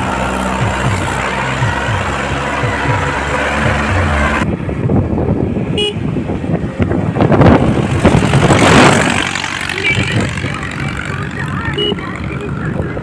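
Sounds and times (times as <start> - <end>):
road noise: 0.0 - 13.0
vehicle engines rumbling: 0.0 - 13.0.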